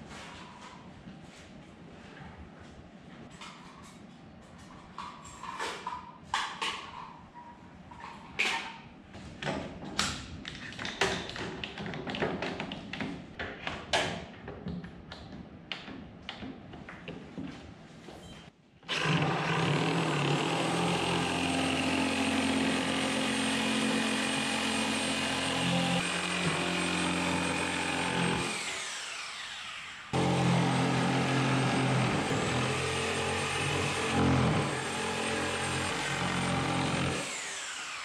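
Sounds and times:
reciprocating saw cutting plywood: 0:18.9 - 0:38.0.

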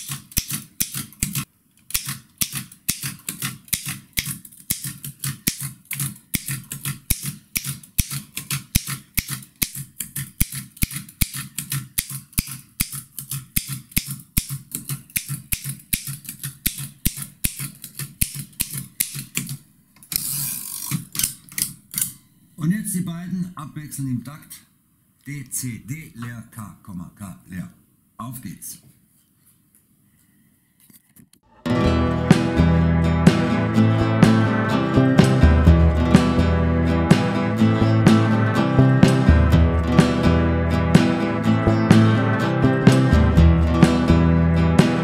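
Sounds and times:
mechanical typewriter typing: 0:00.0 - 0:22.2.

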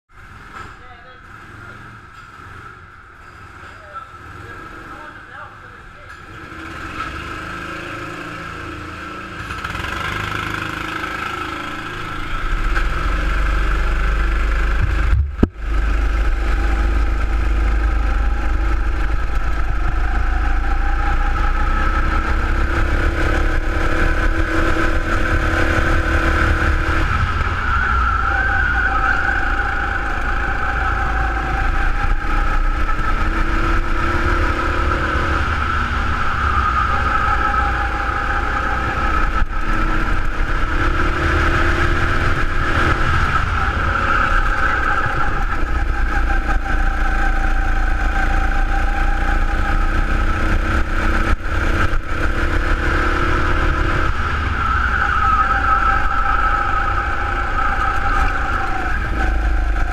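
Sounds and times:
go-kart engine running hard: 0:00.2 - 0:59.9.

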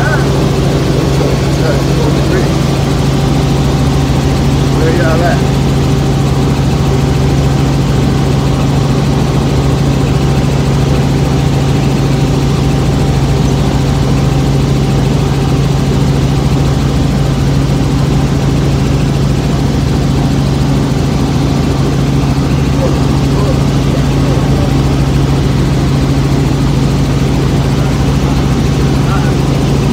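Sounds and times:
helicopter engine and rotor drone: 0:00.0 - 0:29.9.

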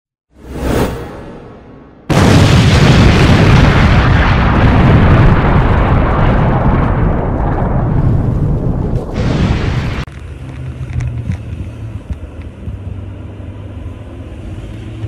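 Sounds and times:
explosion boom: 0:00.7 - 0:10.1.

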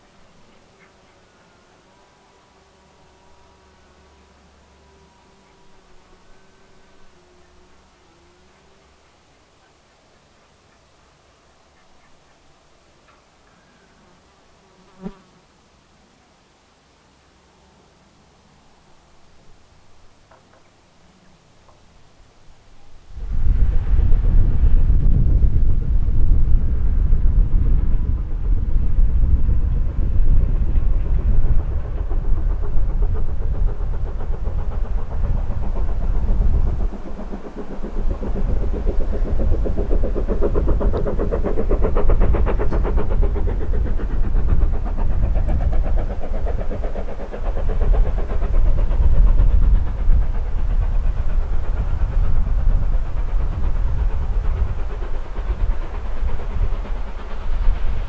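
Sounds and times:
distant engine: 0:00.0 - 0:14.3, 0:23.0 - 0:58.0
wind rumbling on microphone: 0:22.8 - 0:58.0.

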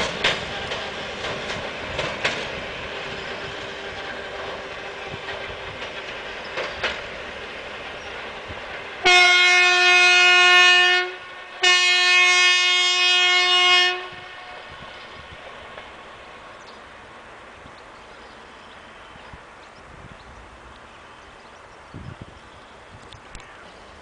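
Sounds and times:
diesel locomotive running: 0:00.0 - 0:24.0
locomotive horn blasts: 0:09.0 - 0:14.7.

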